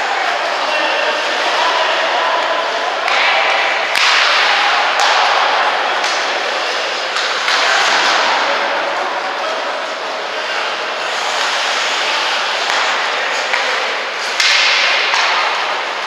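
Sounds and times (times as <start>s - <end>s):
hockey sticks striking puck: 1.4s - 8.8s, 10.6s - 16.0s
skate blades scraping ice: 10.6s - 14.5s.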